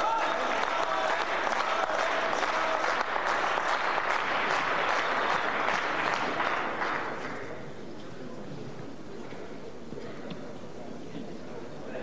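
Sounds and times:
spectators applauding: 0.0 - 7.6
hall background noise: 0.0 - 12.0.

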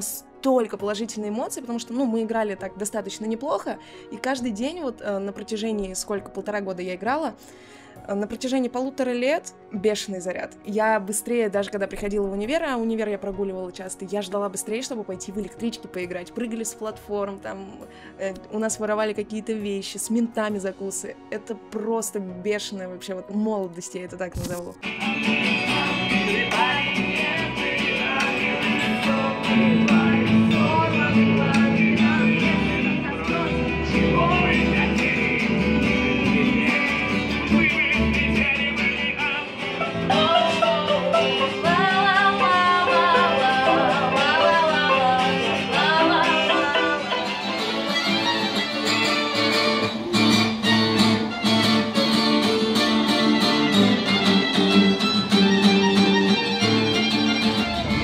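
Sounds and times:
acoustic guitars strumming: 24.4 - 58.0
violin: 24.4 - 58.0
double bass: 57.3 - 58.0.

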